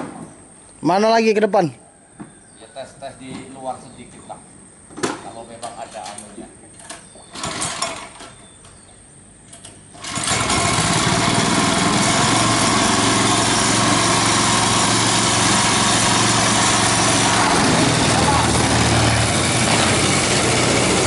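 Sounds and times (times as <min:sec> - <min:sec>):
small petrol boat motor running: 0:10.0 - 0:21.0.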